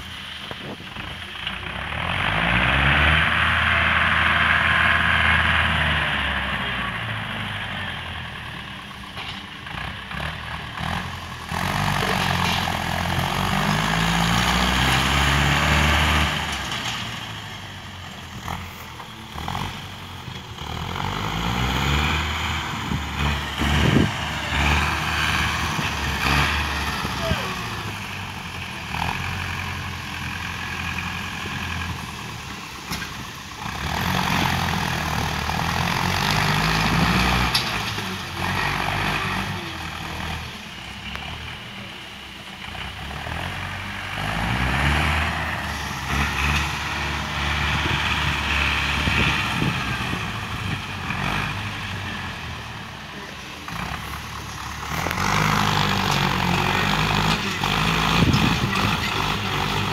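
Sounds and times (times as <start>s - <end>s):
diesel tractor engine under load: 0.0s - 59.9s.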